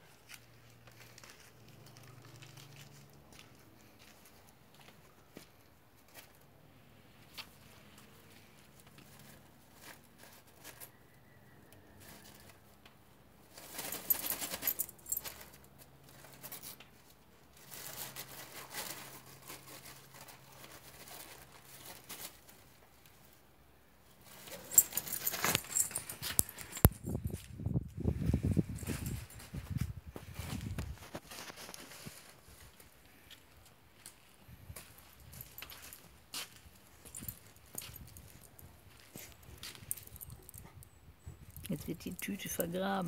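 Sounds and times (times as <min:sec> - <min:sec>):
bag crinkling: 0:13.5 - 0:16.8, 0:17.5 - 0:22.8, 0:24.2 - 0:27.2.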